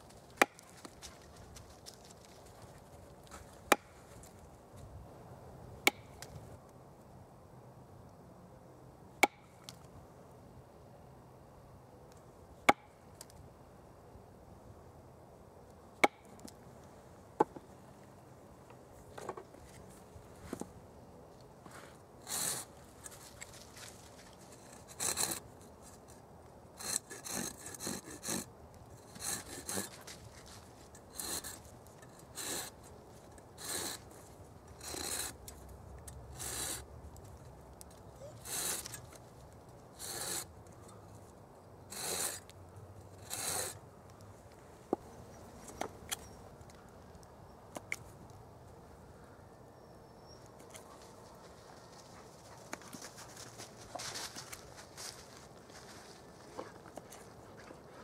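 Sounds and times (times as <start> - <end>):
knife scraping a log: 22.2 - 23.2, 24.5 - 26.2, 26.8 - 35.5, 36.3 - 36.9, 38.3 - 39.2, 39.9 - 40.5, 41.9 - 42.5, 43.1 - 43.8.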